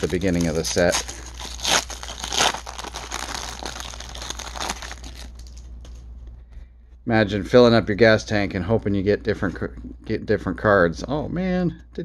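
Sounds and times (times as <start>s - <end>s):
cards rustling: 0.0s - 6.1s
wrapper crinkling: 0.0s - 6.1s.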